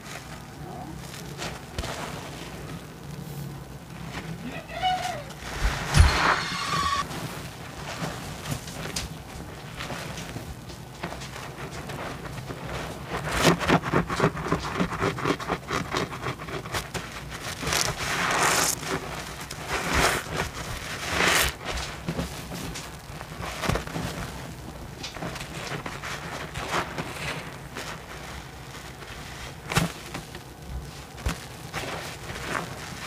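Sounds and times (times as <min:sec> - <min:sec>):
sponge squelching with foam: 0:00.0 - 0:04.7, 0:09.5 - 0:33.0.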